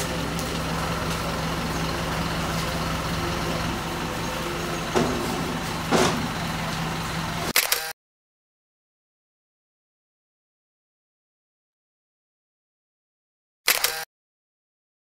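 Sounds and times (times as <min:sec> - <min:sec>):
lorry engine idling: 0:00.0 - 0:07.6.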